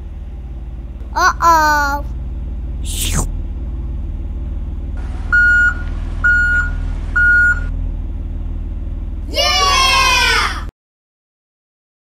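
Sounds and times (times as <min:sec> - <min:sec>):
low engine hum: 0:00.0 - 0:10.7
cartoon falling whoosh: 0:02.8 - 0:03.3.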